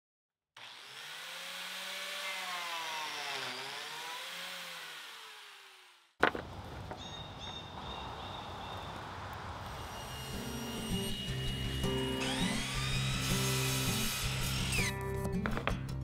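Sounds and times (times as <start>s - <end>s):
biscuit joiner motor cutting wood: 0.6s - 6.1s, 9.8s - 15.0s.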